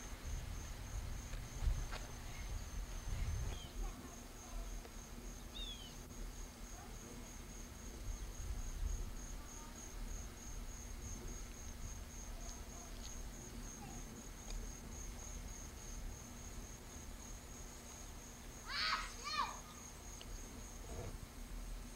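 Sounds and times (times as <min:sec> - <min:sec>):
low microphone rumble: 0:00.0 - 0:04.0
insects trilling: 0:00.0 - 0:21.9.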